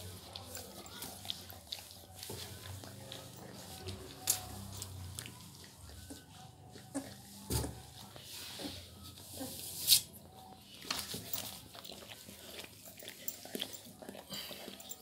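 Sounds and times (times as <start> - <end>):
puppies shuffling and snuffling: 0.0 - 15.0.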